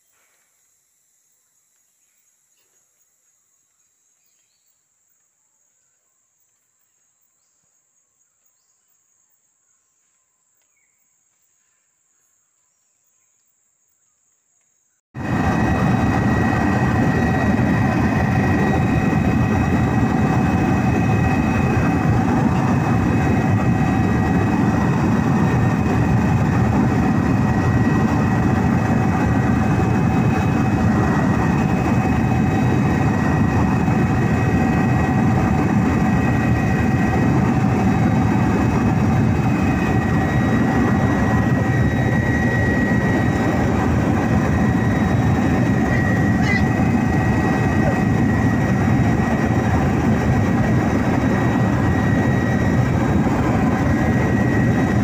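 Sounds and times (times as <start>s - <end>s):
aircraft engine drone in cabin: 15.2s - 55.0s
whining tones: 15.2s - 55.0s.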